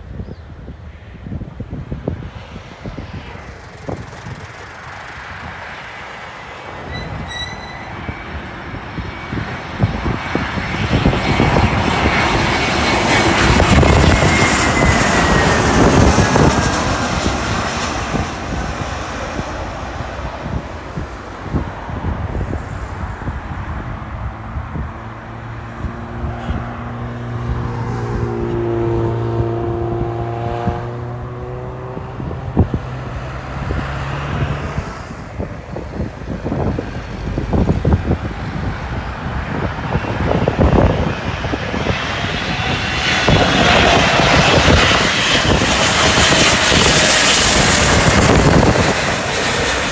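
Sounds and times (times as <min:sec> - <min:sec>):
jet aircraft engine rush: 0:00.0 - 0:49.9
low drawn-out squeal: 0:06.4 - 0:19.0.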